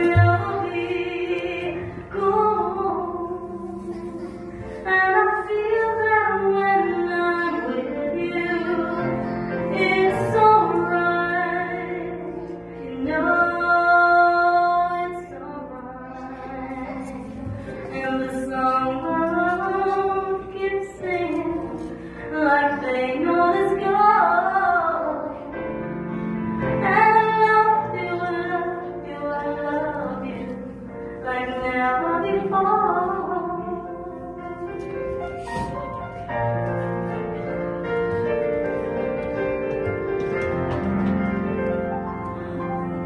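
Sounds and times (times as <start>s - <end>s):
woman singing a slow ballad: 0.0s - 25.6s, 26.8s - 34.4s
digital piano: 0.0s - 43.0s.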